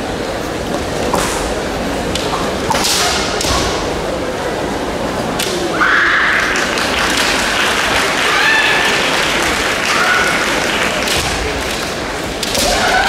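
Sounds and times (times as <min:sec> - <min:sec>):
high kiai shout: 0:09.7 - 0:10.7, 0:12.6 - 0:13.0.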